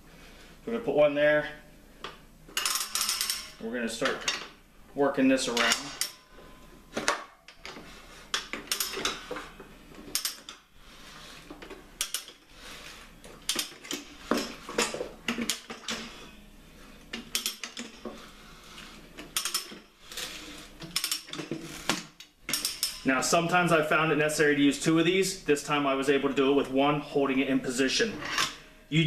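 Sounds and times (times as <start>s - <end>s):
tire changer bar metallic clinks: 8.4s - 9.5s, 22.2s - 23.0s.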